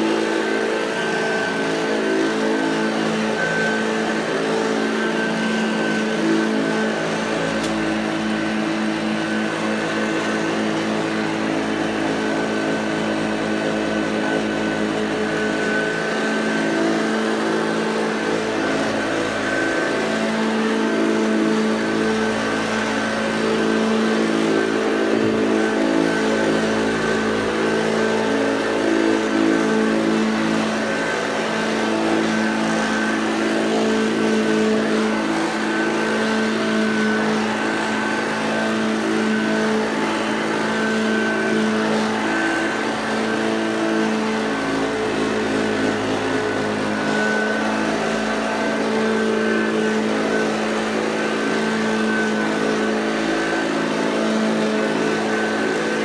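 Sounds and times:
vacuum cleaner running on carpet: 0:00.0 - 0:56.0.

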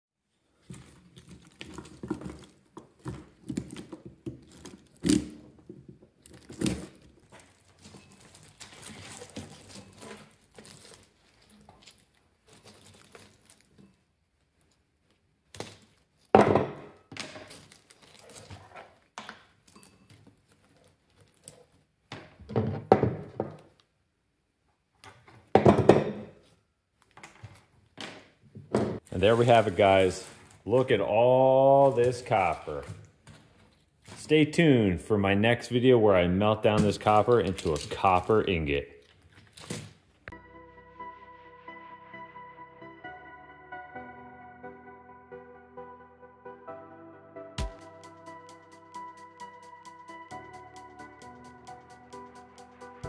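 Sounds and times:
copper coil rustling: 0:06.1 - 0:13.8, 0:29.0 - 0:34.4.

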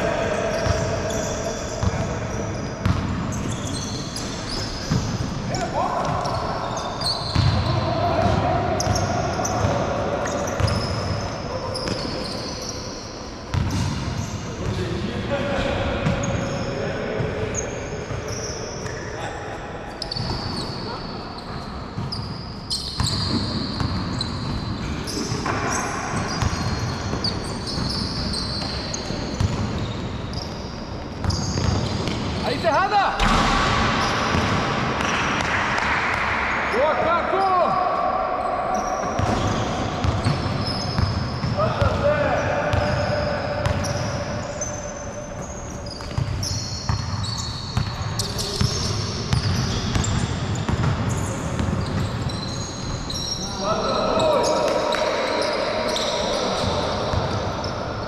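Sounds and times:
sneakers squeaking: 0:00.0 - 0:36.2, 0:37.0 - 0:58.0
basketball bouncing on court: 0:01.8 - 0:05.3, 0:06.0 - 0:12.2, 0:13.5 - 0:14.8, 0:23.0 - 0:30.5, 0:31.1 - 0:32.4, 0:33.2 - 0:36.3, 0:39.1 - 0:42.0, 0:42.6 - 0:44.7, 0:45.3 - 0:52.6.

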